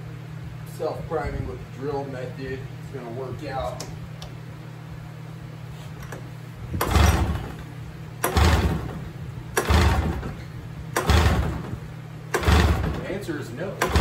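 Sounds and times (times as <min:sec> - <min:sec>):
snowmobile engine pull-starts: 0:06.8 - 0:13.1, 0:13.8 - 0:14.0.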